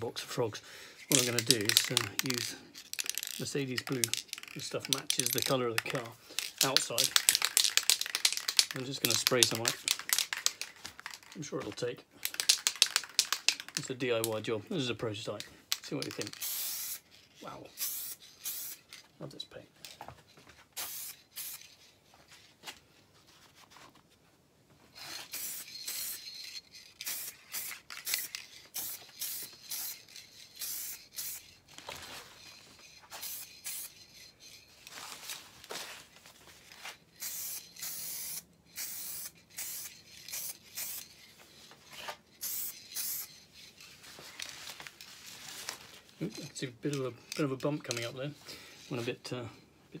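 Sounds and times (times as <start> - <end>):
spray paint can hissing: 1.1 - 11.3, 12.2 - 13.8, 15.7 - 17.1, 17.7 - 19.0, 20.8 - 21.8, 25.0 - 31.5, 32.5 - 34.5, 37.2 - 41.6, 42.3 - 43.9.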